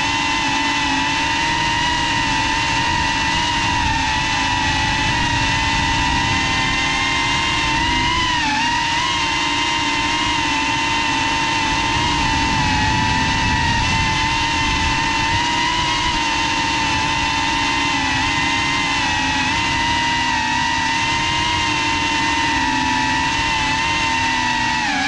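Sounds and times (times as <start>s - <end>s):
drone motors whining: 0.0s - 25.0s.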